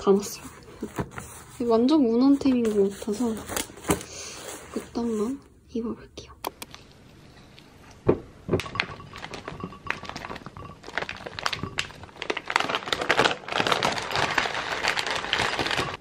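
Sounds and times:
spoon and berries tapping glass: 0:08.6 - 0:10.8
plastic packaging crinkling: 0:08.6 - 0:16.0.

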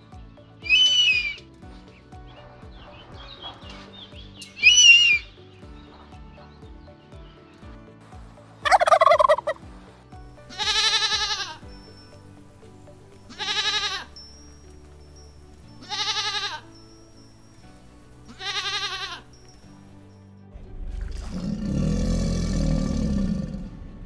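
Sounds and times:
goat bleating: 0:10.5 - 0:11.6, 0:13.3 - 0:14.2, 0:15.8 - 0:16.7, 0:18.3 - 0:19.3.

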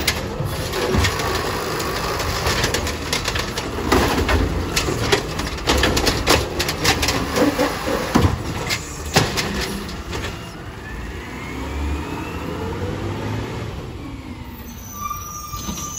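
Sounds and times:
garbage truck lift arm clanking: 0:00.0 - 0:10.7.

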